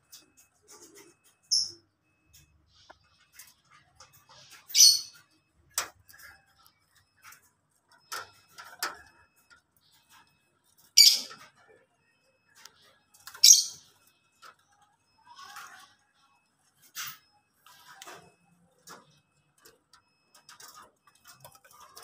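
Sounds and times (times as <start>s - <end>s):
faint bird chirps: 4.2s - 5.4s
high-pitched bird squawks: 4.7s - 5.2s, 11.0s - 11.4s, 13.4s - 13.9s.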